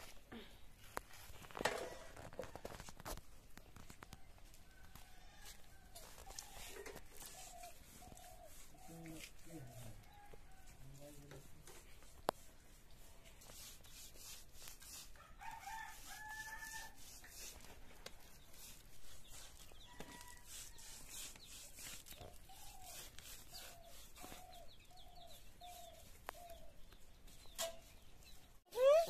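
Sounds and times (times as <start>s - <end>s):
rooster crowing: 15.2s - 17.0s.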